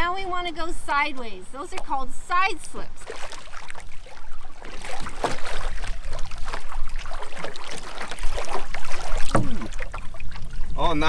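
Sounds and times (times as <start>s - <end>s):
water splashing against canoe: 2.7s - 11.0s
paddle drawn through water: 2.8s - 11.0s.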